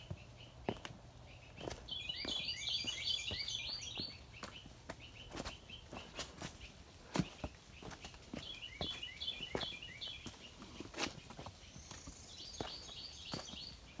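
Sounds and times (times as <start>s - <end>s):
bird chirping high: 0.0s - 10.9s
songbirds singing: 0.0s - 14.0s.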